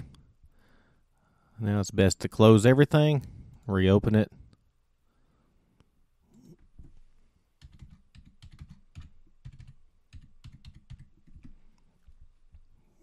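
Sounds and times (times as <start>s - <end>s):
typing on computer keyboard: 7.6s - 11.6s.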